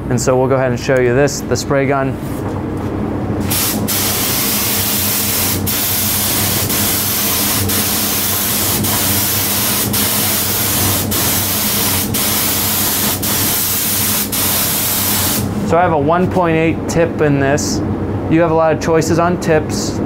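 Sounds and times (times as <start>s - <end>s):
spray gun hissing: 3.4s - 15.6s.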